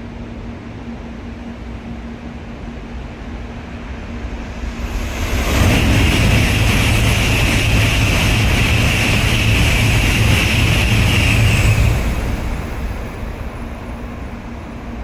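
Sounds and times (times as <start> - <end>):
high-speed train passing: 0.0 - 15.0
rush of air and rolling wheels: 3.9 - 15.0.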